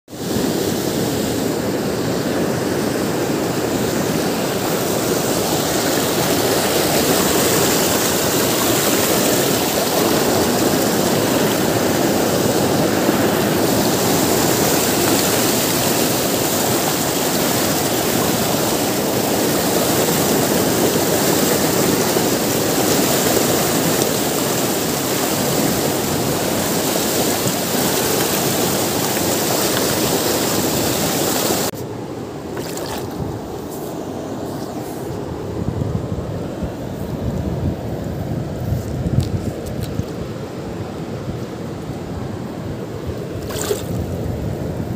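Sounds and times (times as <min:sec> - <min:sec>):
river rapids rushing over boulders: 0:00.2 - 0:31.8.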